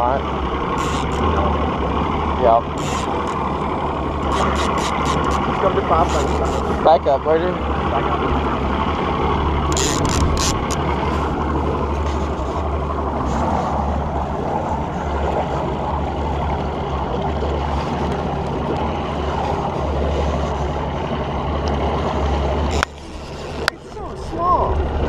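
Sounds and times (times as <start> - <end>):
churning prop wash: 0.0 - 25.0
outboard motor running: 0.0 - 25.0
wind: 0.0 - 25.0.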